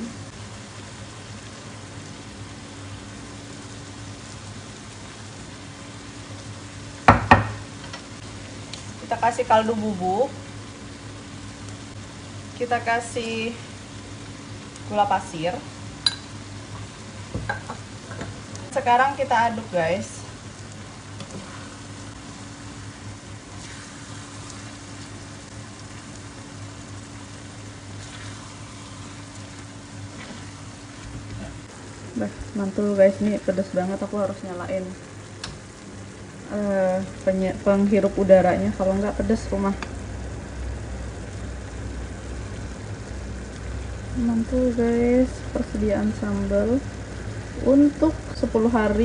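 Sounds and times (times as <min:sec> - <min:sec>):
sambal sizzling in oil: 0:00.0 - 0:49.0
steady low hum: 0:00.0 - 0:49.0.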